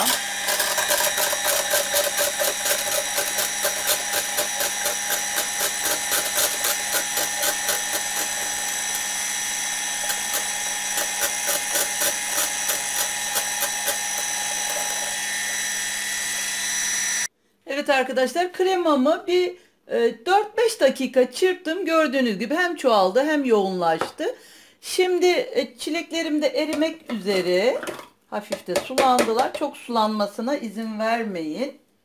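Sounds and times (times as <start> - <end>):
hand blender whisking cream: 0.0 - 17.3.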